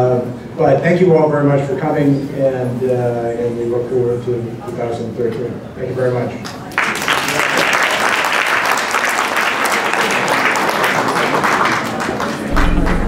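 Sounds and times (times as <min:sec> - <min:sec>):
audience applauding: 0:06.7 - 0:13.0
electronic music with heavy bass: 0:12.5 - 0:13.0.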